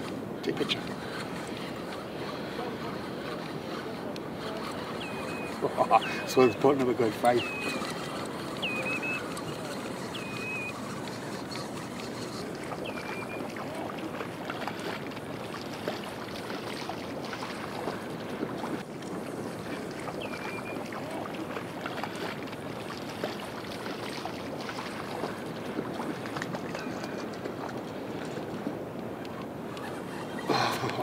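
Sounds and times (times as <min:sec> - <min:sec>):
light water splashes: 0:00.0 - 0:31.0
sea water washing: 0:00.0 - 0:31.0.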